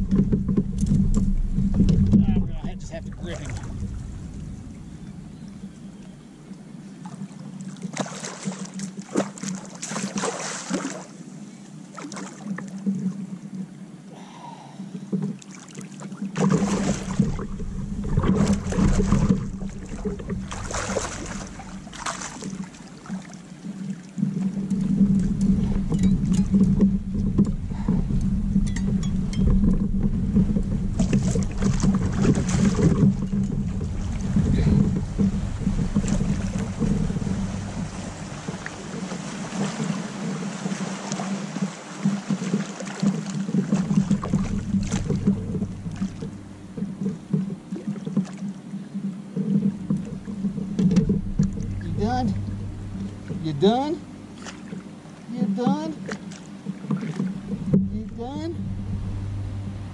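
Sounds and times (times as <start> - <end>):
low rumble: 0.0 - 7.0, 16.5 - 23.2, 24.1 - 40.4, 43.6 - 47.9, 49.6 - 55.2, 56.6 - 59.9
steady low hum: 0.0 - 15.4, 16.2 - 59.9
fish splashing in water: 7.0 - 11.2, 15.4 - 25.7, 30.9 - 51.8.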